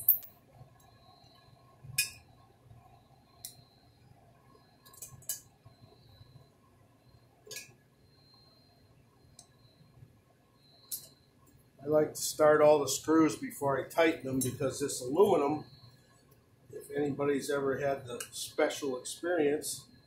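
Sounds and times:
small metal screws clinking: 0.0s - 0.4s, 4.8s - 5.4s.

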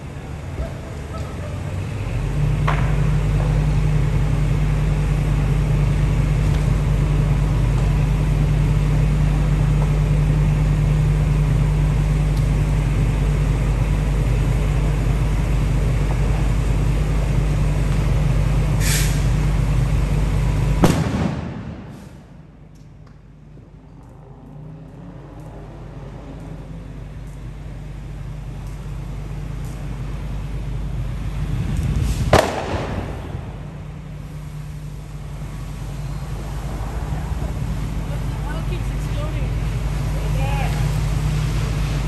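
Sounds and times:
fire engine engine droning: 0.0s - 42.0s
short hiss: 18.8s - 19.4s.

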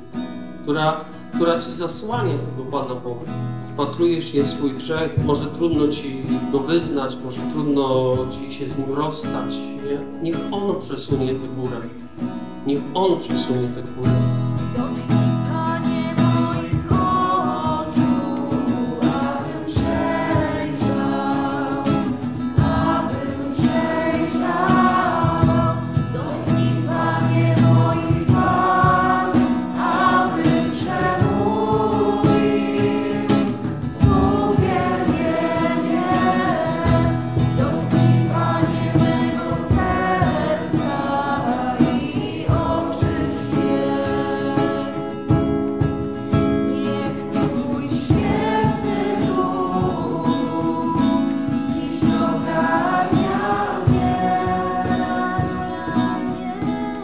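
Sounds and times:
strummed acoustic guitar: 0.0s - 57.0s
group singing worship song: 14.6s - 57.0s.

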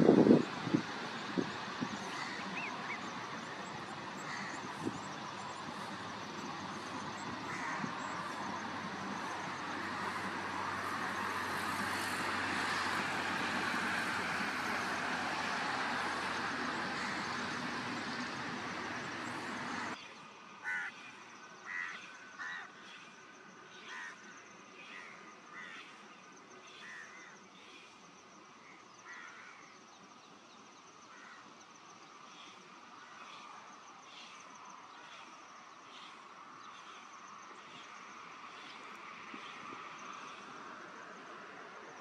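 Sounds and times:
harsh bird calls: 0.0s - 10.4s
steady rushing noise: 0.0s - 20.0s.

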